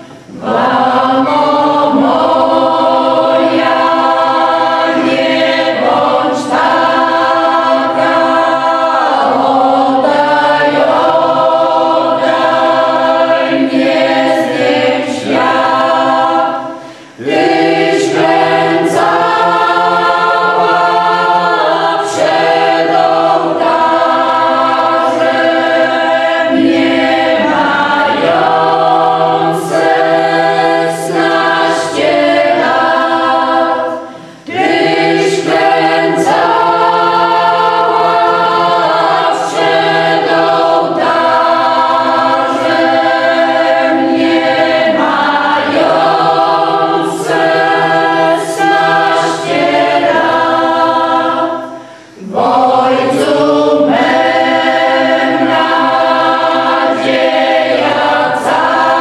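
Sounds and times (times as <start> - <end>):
singers breathing: 0.0 - 0.3, 16.5 - 17.2, 33.9 - 34.5, 51.5 - 52.3
mixed choir singing unaccompanied: 0.0 - 59.0.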